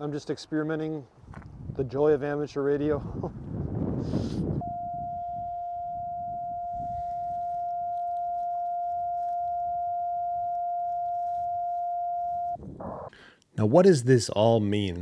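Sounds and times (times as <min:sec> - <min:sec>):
steady mid-pitched beep: 0:04.6 - 0:13.0.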